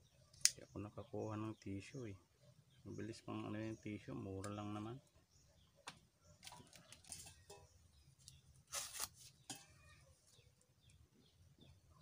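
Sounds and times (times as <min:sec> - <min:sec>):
burning paper rustling and crackling: 0:08.2 - 0:09.6.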